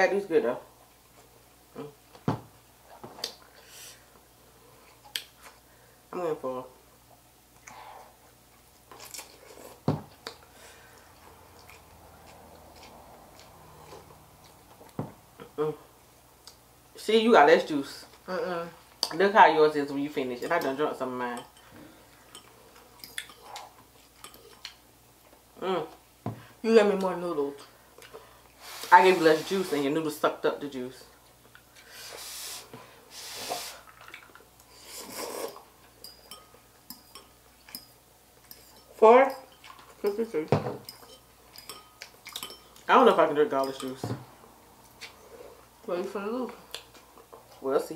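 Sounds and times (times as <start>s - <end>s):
slurping noodles: 34.7s - 35.6s.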